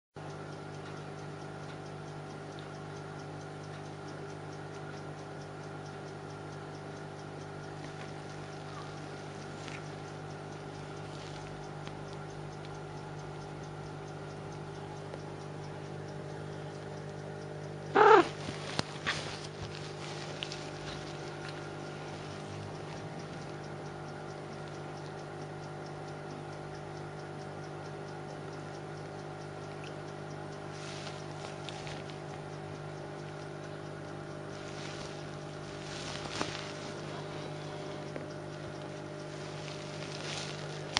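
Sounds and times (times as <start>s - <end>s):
hum of held tones: 0.2s - 40.9s
kitten rustling on blanket: 18.3s - 21.2s, 34.6s - 37.4s, 39.4s - 40.9s.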